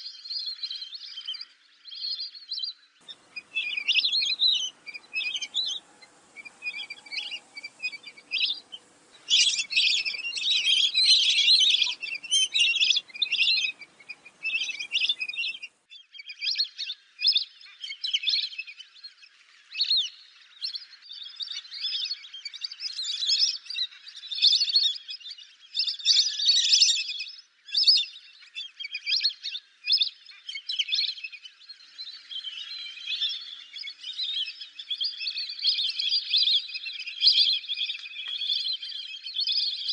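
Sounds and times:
ducks whistling calls: 0:03.0 - 0:15.8
low background hiss: 0:03.0 - 0:15.9.

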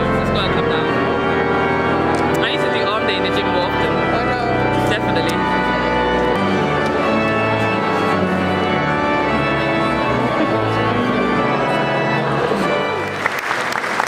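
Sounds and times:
organ playing sustained chords: 0:00.0 - 0:14.0
people clapping: 0:13.0 - 0:14.0.

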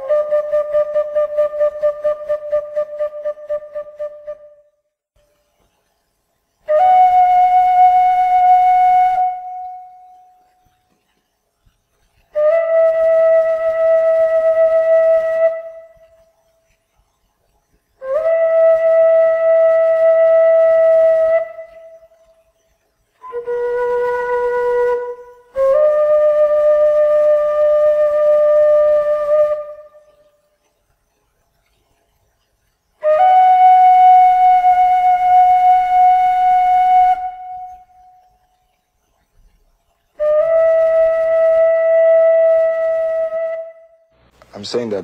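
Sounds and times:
solemn wind instrument melody: 0:06.7 - 0:10.4, 0:12.4 - 0:16.2, 0:18.0 - 0:22.2, 0:23.2 - 0:30.3, 0:33.0 - 0:38.2, 0:40.2 - 0:44.2.

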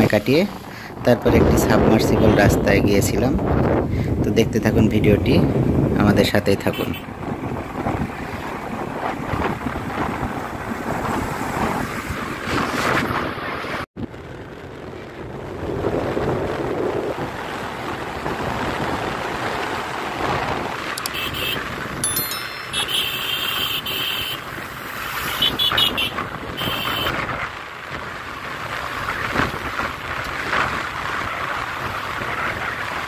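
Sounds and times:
wind buffeting microphone: 0:00.0 - 0:06.4, 0:07.0 - 0:21.0
motorcycle road and engine noise: 0:00.0 - 0:33.0.

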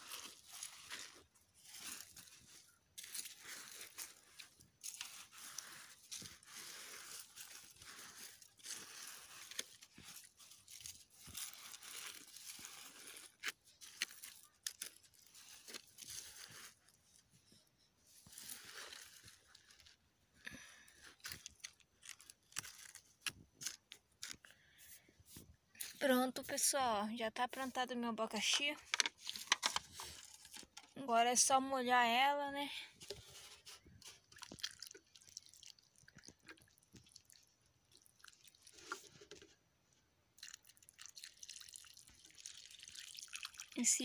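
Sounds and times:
hands crunching dry soil: 0:00.0 - 0:31.5, 0:33.0 - 0:39.6.

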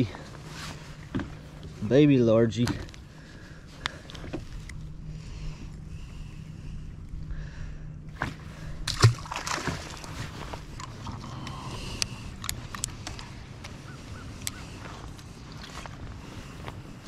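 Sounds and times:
electric boat motor humming: 0:00.0 - 0:17.0
thump and splash: 0:08.2 - 0:10.1.

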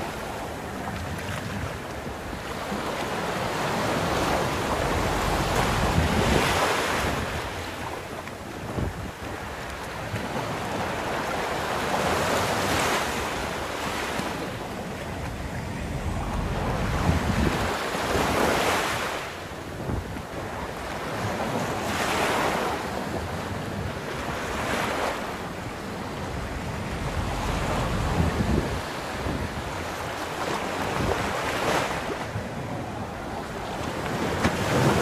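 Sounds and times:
wind rumbling on microphone: 0:00.0 - 0:35.0
surf breaking on beach: 0:02.4 - 0:09.5, 0:10.2 - 0:20.1, 0:24.2 - 0:32.2.

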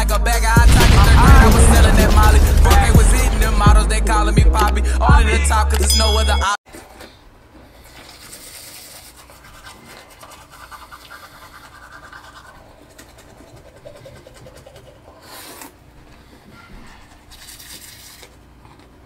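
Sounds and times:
teeth brushing scrubbing: 0:07.6 - 0:15.8, 0:17.0 - 0:19.0.

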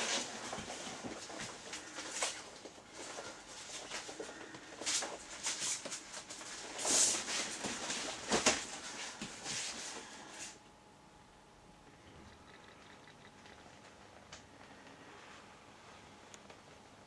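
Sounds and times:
plastic raincoat rustling: 0:00.0 - 0:10.5.

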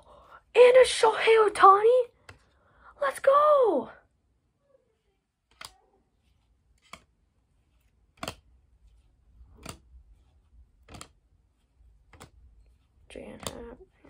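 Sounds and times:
cards snapping: 0:06.7 - 0:10.1, 0:10.7 - 0:11.2, 0:11.9 - 0:12.6.

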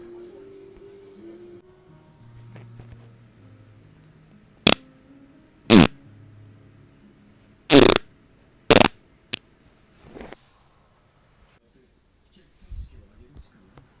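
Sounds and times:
loud farts: 0:05.7 - 0:06.0, 0:07.7 - 0:08.1, 0:08.7 - 0:09.0.

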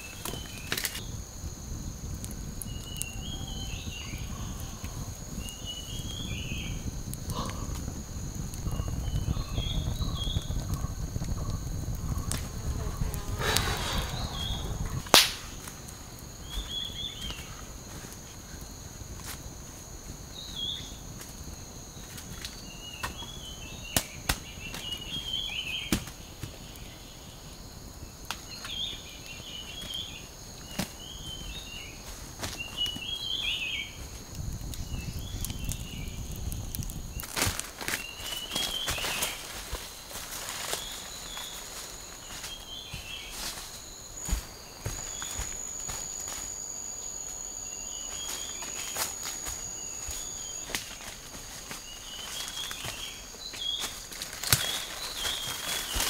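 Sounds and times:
campfire snaps and crackles: 0:00.0 - 0:56.0
steady high hum: 0:04.3 - 0:17.9, 0:41.6 - 0:53.6
birds chirping: 0:08.7 - 0:15.6
low rumble: 0:11.0 - 0:15.7.

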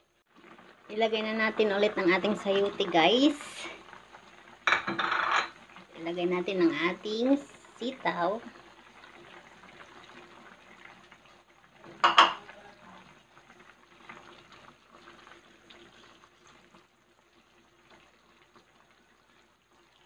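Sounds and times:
soup bubbling at a boil: 0:00.1 - 0:20.0
cookware clanking against pot: 0:12.0 - 0:12.5.

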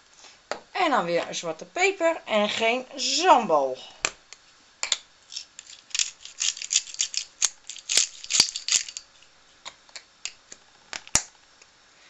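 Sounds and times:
pepper mill grinding peppercorns: 0:05.3 - 0:09.3.

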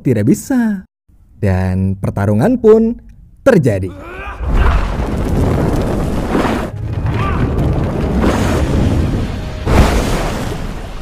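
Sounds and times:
fire blasts roaring: 0:04.0 - 0:11.0.

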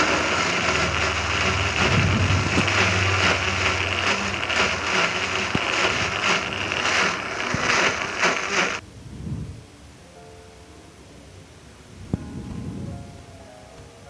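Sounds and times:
electric blender whirring: 0:00.0 - 0:08.8.

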